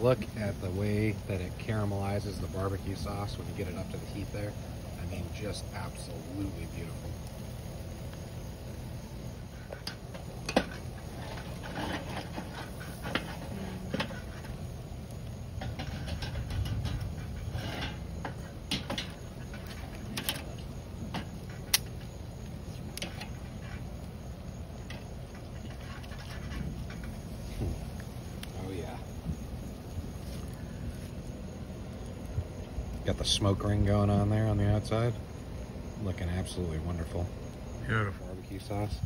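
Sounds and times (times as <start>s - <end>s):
fat popping on charcoal grill: 0.0s - 39.0s
low steady rumble: 0.0s - 39.0s.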